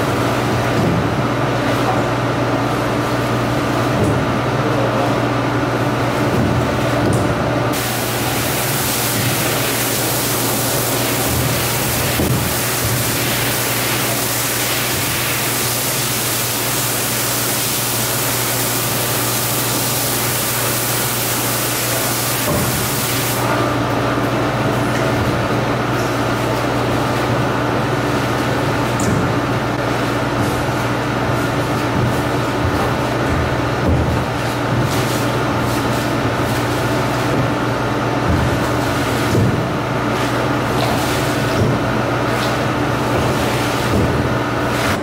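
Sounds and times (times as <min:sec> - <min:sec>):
pressure washer machine hum: 0:05.2 - 0:45.0
high-pressure water jet hissing: 0:07.8 - 0:23.4.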